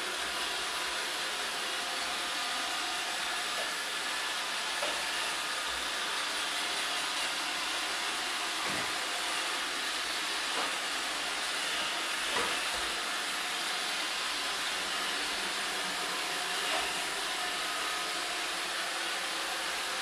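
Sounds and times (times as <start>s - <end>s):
robot vacuum whirring: 0.0s - 20.0s.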